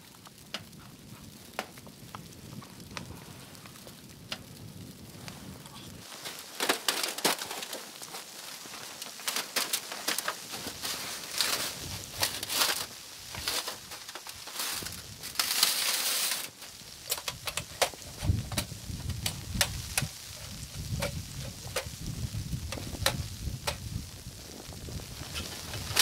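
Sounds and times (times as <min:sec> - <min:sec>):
crinkly rustling: 0:00.0 - 0:26.0
wind buffeting microphone: 0:00.4 - 0:06.1, 0:16.7 - 0:26.0.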